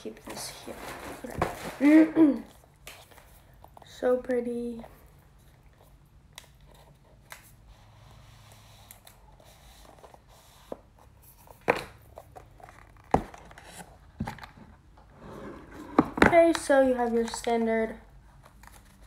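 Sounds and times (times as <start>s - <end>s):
rustling and scraping of a box: 0.0s - 4.0s, 7.7s - 19.0s.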